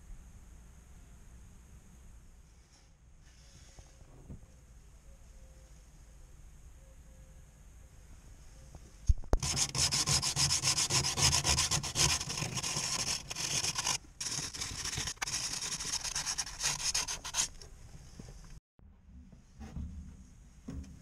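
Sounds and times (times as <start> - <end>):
scraping strokes on steel panels: 9.4 - 17.8.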